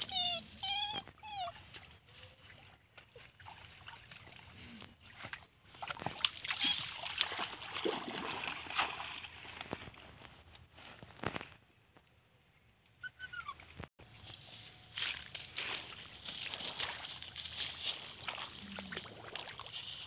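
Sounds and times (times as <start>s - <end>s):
dog whining: 0.0s - 1.7s, 13.0s - 13.8s
splashing through water: 2.5s - 10.0s, 15.8s - 20.0s.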